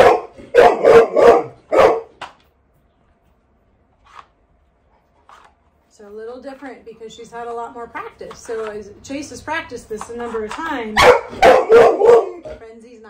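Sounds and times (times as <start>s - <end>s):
puppy barking: 0.0s - 2.2s, 11.0s - 12.4s.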